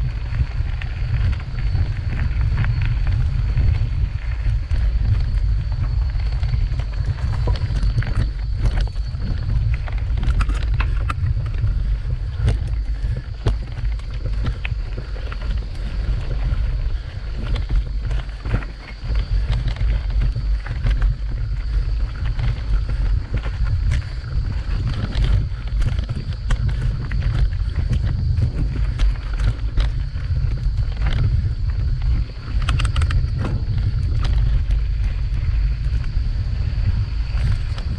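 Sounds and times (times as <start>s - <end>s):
bike rattling over stones: 0.0s - 37.9s
wind buffeting microphone: 0.0s - 37.9s.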